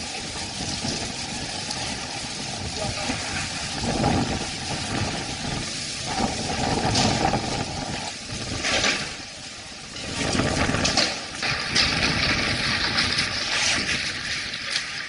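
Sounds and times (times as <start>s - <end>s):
heavy rain pouring: 0.0s - 15.0s
storm wind gusting: 0.0s - 15.0s.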